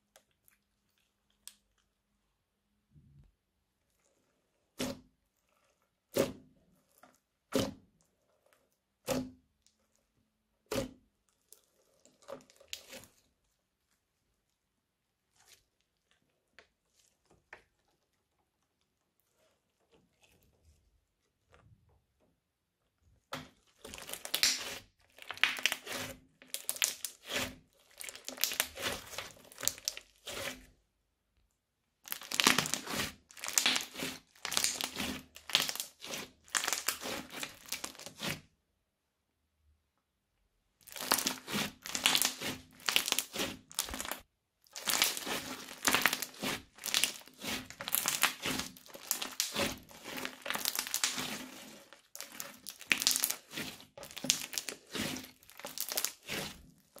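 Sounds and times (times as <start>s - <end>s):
crunchy slime being kneaded: 10.6s - 14.0s, 23.3s - 30.7s, 32.0s - 38.5s, 40.8s - 57.0s.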